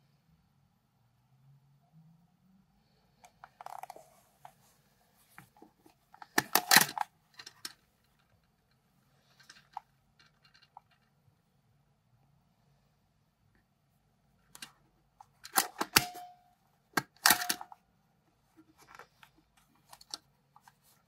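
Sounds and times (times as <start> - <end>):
plastic camera clicks and rattles: 3.2 - 4.6, 5.8 - 8.7, 9.3 - 11.1, 14.5 - 16.4, 17.0 - 17.8, 18.6 - 21.0.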